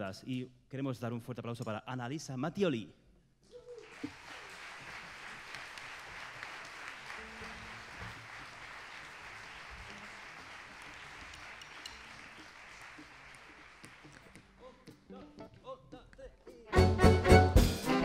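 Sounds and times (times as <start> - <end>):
audience applauding: 3.8 - 14.4.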